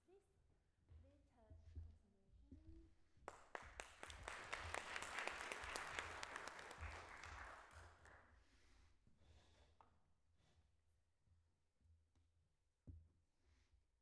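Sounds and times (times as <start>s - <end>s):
audience applauding: 3.3s - 8.2s.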